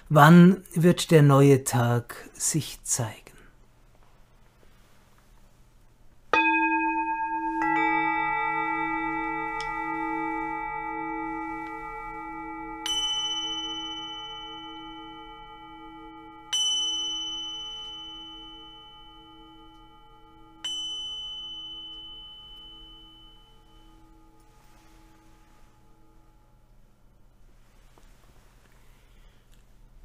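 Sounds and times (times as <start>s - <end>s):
singing bowl humming: 6.2s - 28.0s
small high-pitched bell struck: 6.3s - 26.8s.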